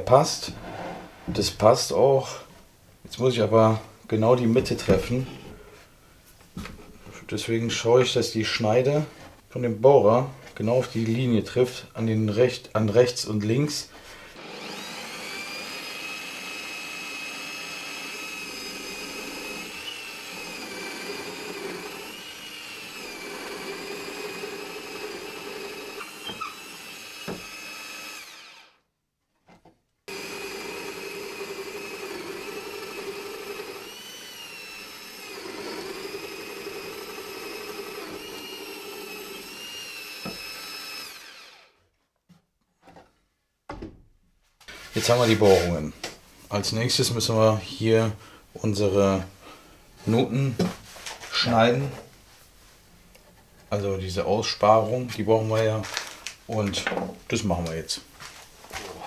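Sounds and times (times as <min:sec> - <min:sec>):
drill press motor whine: 0:14.4 - 0:28.7, 0:30.1 - 0:41.7
drill bit cutting wood: 0:14.4 - 0:28.8, 0:30.1 - 0:41.8.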